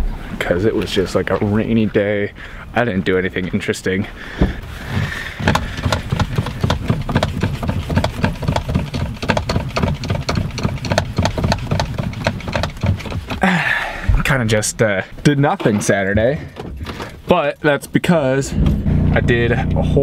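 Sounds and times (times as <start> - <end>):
car engine idling: 4.1 - 14.4, 18.5 - 20.0
knocking rattle: 4.4 - 13.5.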